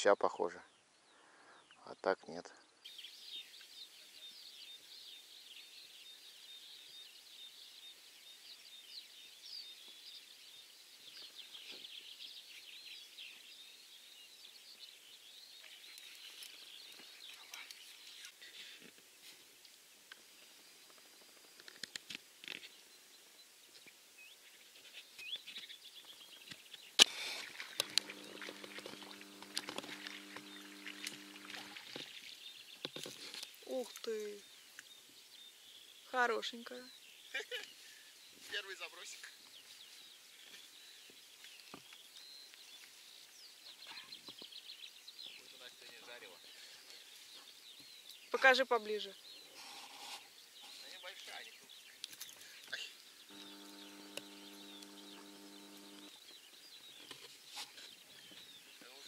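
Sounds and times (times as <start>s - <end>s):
birds chirping: 0.0s - 18.9s, 22.6s - 59.0s
steady low hum: 27.8s - 31.8s, 53.3s - 56.2s.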